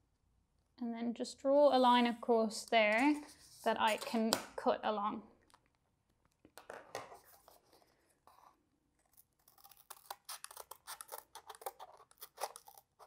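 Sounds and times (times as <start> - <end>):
scissors snipping cardboard: 9.0 - 13.0.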